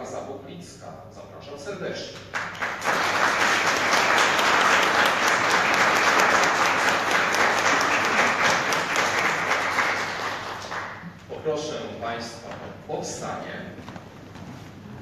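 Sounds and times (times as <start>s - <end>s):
audience applauding: 2.3s - 11.2s.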